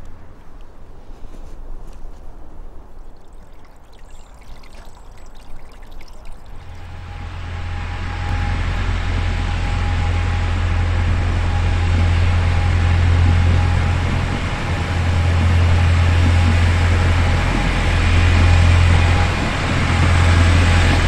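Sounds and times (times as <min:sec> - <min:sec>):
diesel locomotive running: 0:06.5 - 0:21.0.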